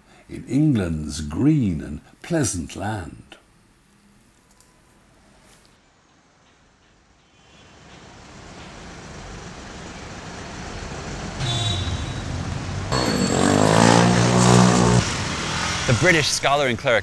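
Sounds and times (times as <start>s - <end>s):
city street traffic: 5.8s - 16.3s
vehicle engine passing: 12.2s - 16.1s.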